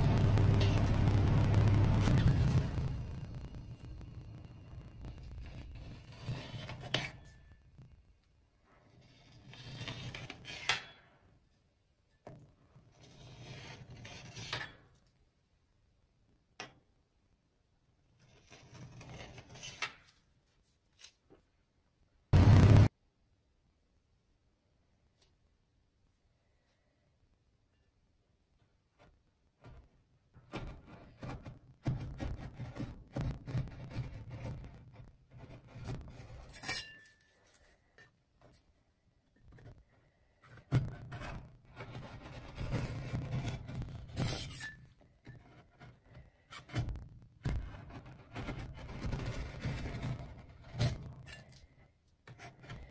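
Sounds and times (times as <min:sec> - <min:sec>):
spatula scraping ice cream: 0:05.4 - 0:07.5, 0:12.8 - 0:14.8, 0:18.2 - 0:19.8, 0:32.2 - 0:37.5
metal spatula scraping metal plate: 0:05.4 - 0:07.6, 0:08.9 - 0:11.1, 0:35.6 - 0:37.3, 0:40.9 - 0:46.9.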